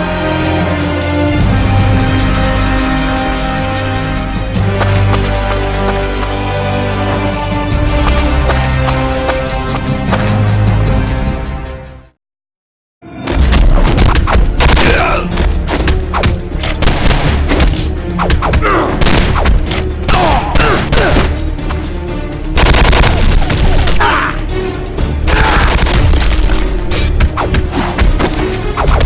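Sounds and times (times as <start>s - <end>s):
loud driving background music: 0.0s - 12.1s, 13.2s - 29.0s
dense gunfire: 16.8s - 17.5s, 22.6s - 24.0s.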